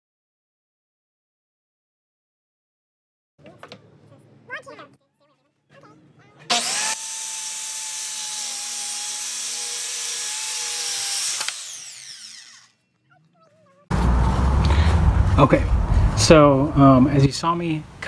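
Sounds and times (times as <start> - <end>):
circular saw cutting plywood: 6.5 - 12.8.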